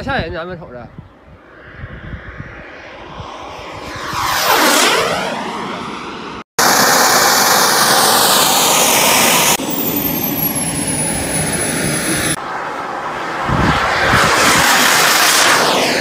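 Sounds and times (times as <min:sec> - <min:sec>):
jet flyby rushing hiss: 0:01.3 - 0:09.6, 0:13.2 - 0:16.0
model jet engine: 0:01.4 - 0:16.0.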